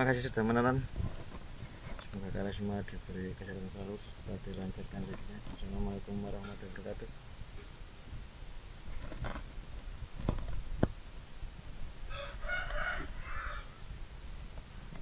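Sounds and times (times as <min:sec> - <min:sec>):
rooster crowing: 0:12.1 - 0:13.9.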